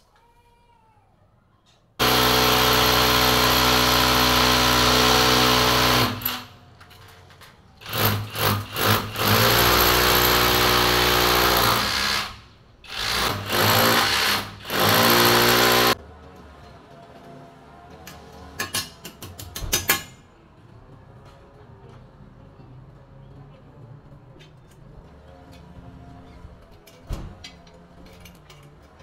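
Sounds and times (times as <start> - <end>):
electric drill boring into wall: 2.0 - 6.5, 7.8 - 16.0.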